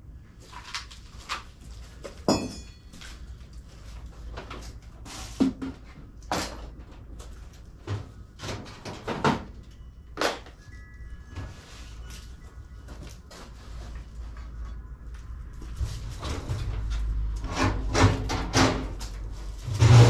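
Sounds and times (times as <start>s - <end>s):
metallic ring: 2.3s - 3.0s.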